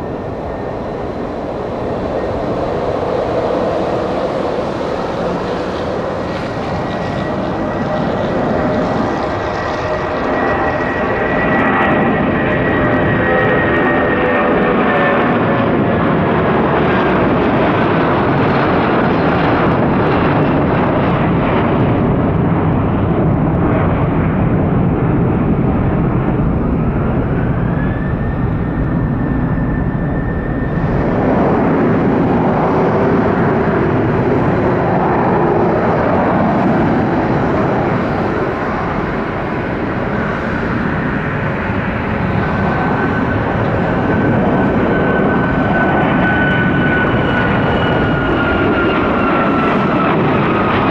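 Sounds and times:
jet airliner takeoff roll: 0:00.0 - 0:50.9
jet engines at takeoff thrust: 0:00.0 - 0:50.9.

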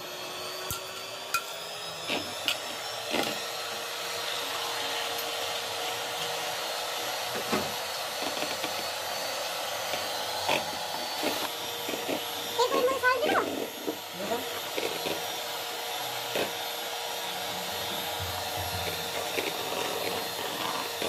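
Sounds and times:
electric hand mixer whirring: 0:00.0 - 0:21.0
mixer beaters knocking bowl: 0:17.6 - 0:21.0.

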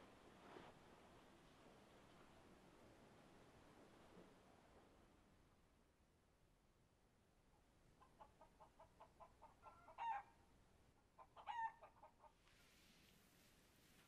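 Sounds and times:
chicken clucking: 0:08.0 - 0:10.2.

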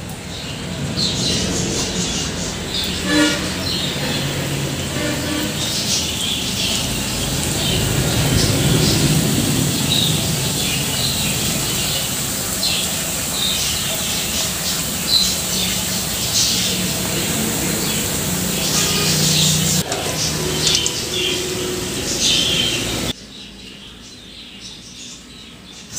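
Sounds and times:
food deep-frying in oil: 0:00.0 - 0:23.2
birds chirping: 0:00.1 - 0:25.9.

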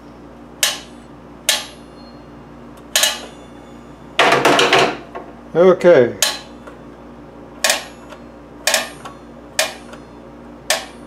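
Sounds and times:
steel blade ringing: 0:03.0 - 0:04.0.

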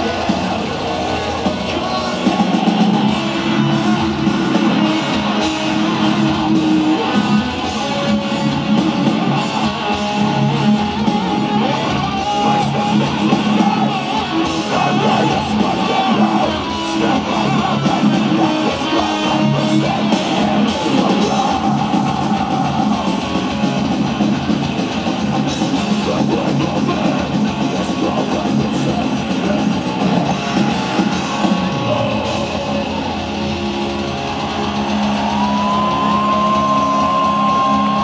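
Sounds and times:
bass guitar: 0:00.0 - 0:38.0
distorted electric guitars: 0:00.0 - 0:38.0
drums: 0:00.0 - 0:38.0.

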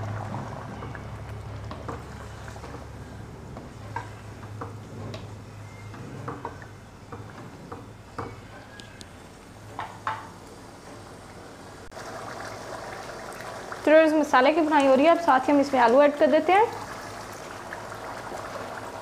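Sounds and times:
meat frying in oil: 0:11.9 - 0:19.0.

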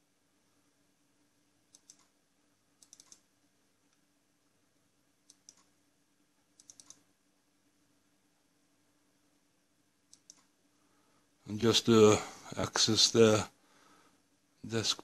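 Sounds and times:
faint steady hum: 0:00.0 - 0:15.0
computer mouse clicking: 0:01.7 - 0:02.2, 0:02.8 - 0:03.3, 0:05.2 - 0:05.8, 0:06.5 - 0:07.1, 0:10.1 - 0:10.6.

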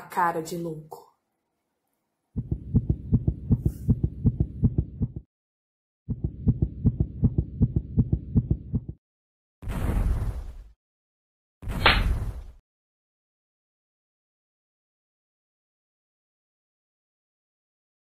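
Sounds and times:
muffled low thumping pulses: 0:02.4 - 0:05.3, 0:06.1 - 0:09.0.

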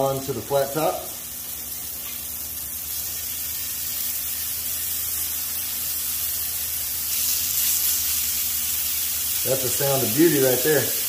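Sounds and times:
burger patties sizzling on griddle: 0:00.0 - 0:11.0.

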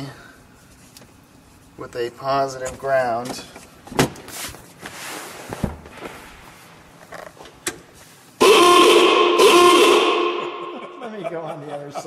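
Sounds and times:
ahooga car horn: 0:08.4 - 0:11.1.

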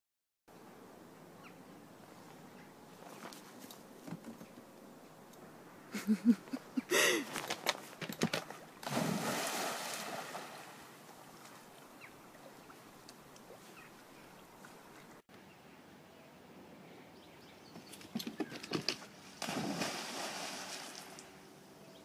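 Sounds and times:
water churning: 0:08.5 - 0:15.2, 0:19.4 - 0:21.4
big splash into water: 0:08.8 - 0:10.8, 0:19.4 - 0:21.3.

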